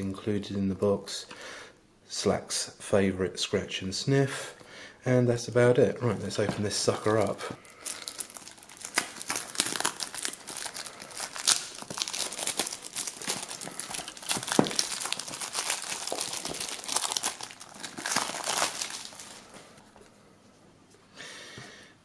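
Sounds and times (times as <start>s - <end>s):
shrink-wrap tearing and crinkling: 6.8s - 20.0s.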